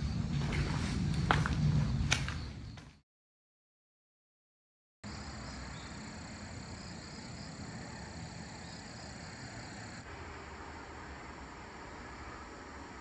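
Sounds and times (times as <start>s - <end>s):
high-pitched insect chorus: 5.1s - 13.0s.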